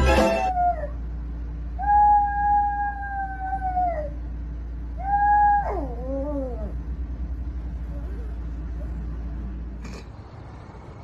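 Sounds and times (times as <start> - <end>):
small dog howling: 1.8 - 4.2, 5.0 - 6.8.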